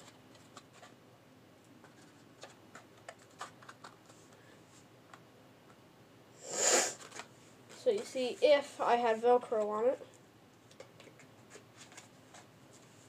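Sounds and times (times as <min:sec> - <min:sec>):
cardboard clicking and crackling: 0:01.8 - 0:04.2
loud rustling hiss: 0:06.4 - 0:07.0.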